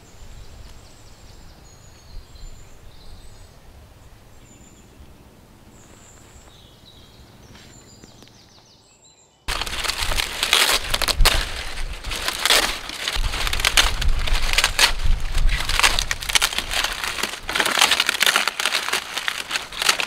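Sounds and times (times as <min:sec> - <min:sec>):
dry leaves crackling and tearing: 0:09.5 - 0:20.0.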